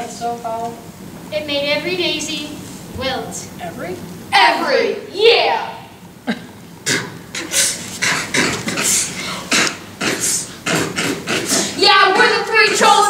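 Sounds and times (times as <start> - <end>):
breathy vocal bursts: 6.8 - 11.8.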